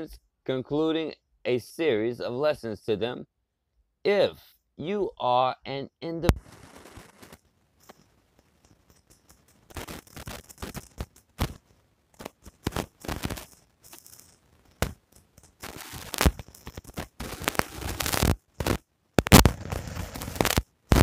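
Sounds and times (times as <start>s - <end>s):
narrator reading: 0.0s - 3.3s, 4.1s - 6.4s
crackling and popping clicks: 6.3s - 21.0s.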